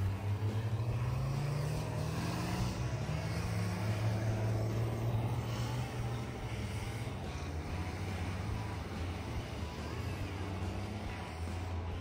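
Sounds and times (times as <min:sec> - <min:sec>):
diesel engine revving: 0:00.0 - 0:12.0.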